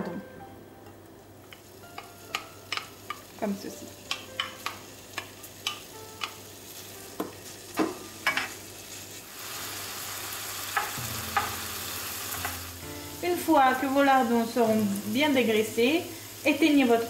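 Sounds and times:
spatula tapping against pan: 1.5s - 3.2s, 4.1s - 6.4s, 10.8s - 11.6s
meat sizzling in a frying pan: 1.5s - 17.0s.

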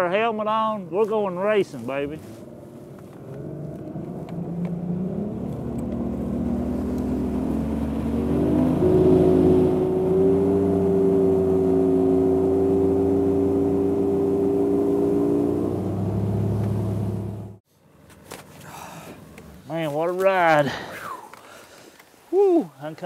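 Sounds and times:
outboard motor accelerating: 2.8s - 17.6s.

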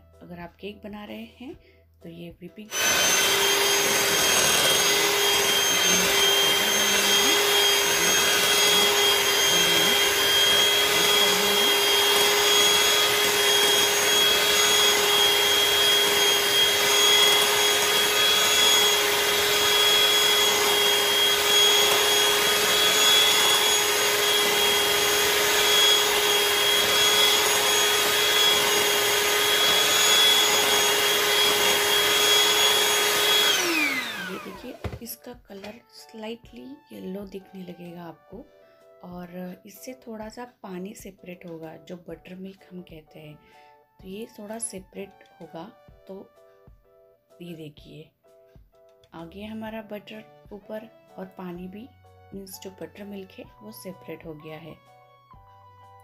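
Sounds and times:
electric hand mixer whipping cream: 2.7s - 35.0s.

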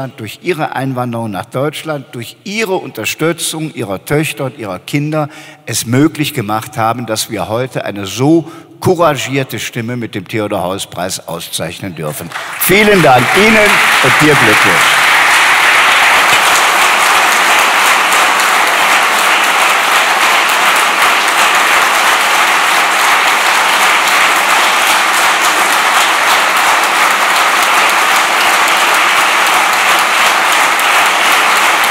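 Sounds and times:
audience applauding: 12.2s - 31.9s.

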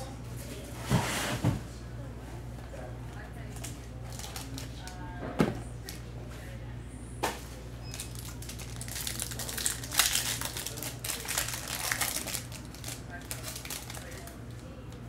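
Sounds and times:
foil pack crinkling: 3.5s - 5.0s, 7.9s - 14.7s.

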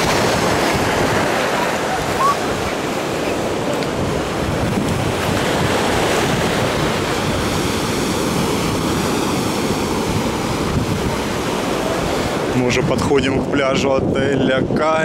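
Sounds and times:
surf breaking on beach: 0.0s - 15.0s
wind buffeting microphone: 0.0s - 15.0s.

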